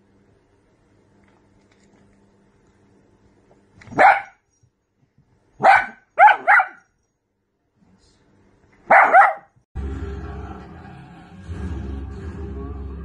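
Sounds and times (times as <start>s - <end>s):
small dog barking: 3.8s - 4.4s, 5.6s - 6.9s, 8.8s - 9.6s
music: 9.8s - 13.0s.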